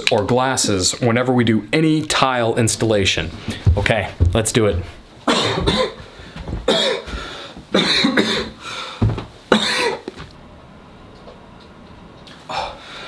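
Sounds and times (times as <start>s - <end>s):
man coughing: 5.2s - 6.0s, 6.7s - 8.6s, 9.5s - 10.1s.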